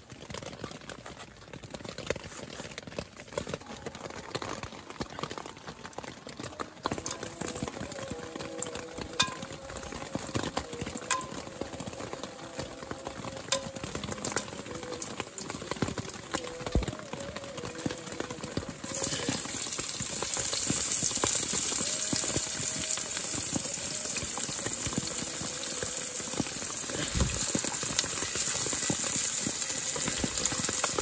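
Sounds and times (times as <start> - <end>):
faint sizzle: 5.4 - 31.0
spices clicking in pan: 7.8 - 11.6, 18.4 - 31.0.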